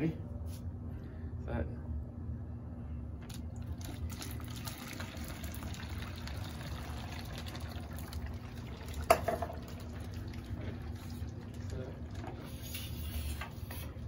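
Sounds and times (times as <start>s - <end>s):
water splashing and bubbling: 3.3s - 12.6s.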